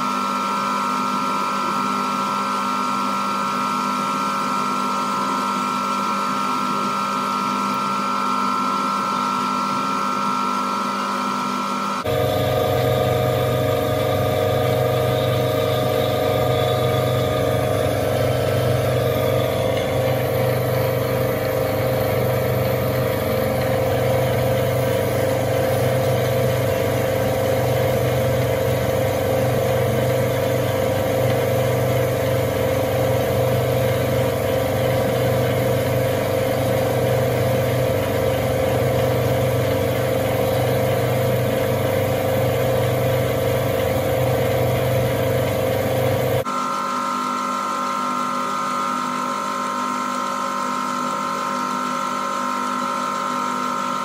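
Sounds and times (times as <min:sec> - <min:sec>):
metal lathe humming: 0:04.1 - 0:46.6.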